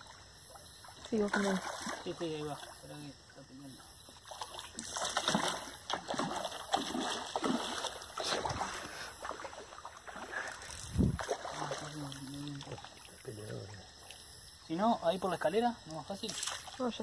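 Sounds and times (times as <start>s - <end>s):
fish splashing at water surface: 0.8s - 2.8s, 4.2s - 13.3s.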